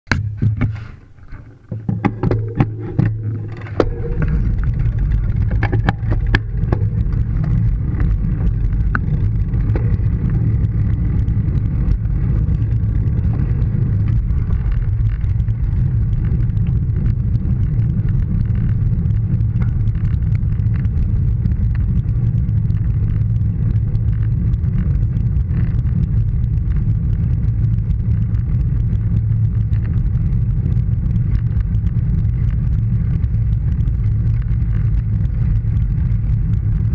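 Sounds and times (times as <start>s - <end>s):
clicks and knocks: 0.1s - 10.0s
wind buffeting microphone: 0.2s - 36.9s.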